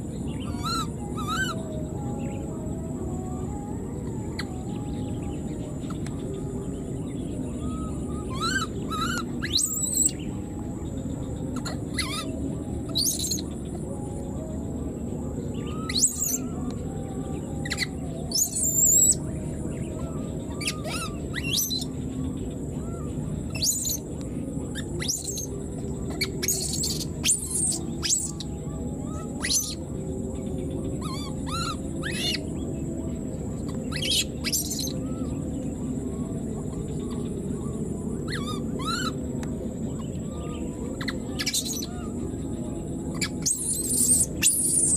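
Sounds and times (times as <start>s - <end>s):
steady high-pitched whine: 0.0s - 44.9s
baby monkey high-pitched calls: 0.4s - 1.6s, 8.3s - 10.1s, 11.6s - 12.3s, 12.9s - 13.4s, 15.8s - 16.5s, 17.6s - 19.2s, 20.6s - 21.9s, 23.5s - 24.0s, 24.8s - 25.5s, 26.1s - 28.5s, 29.1s - 29.8s, 31.0s - 32.4s, 33.9s - 35.2s, 38.3s - 39.2s, 41.0s - 42.1s, 43.1s - 44.9s.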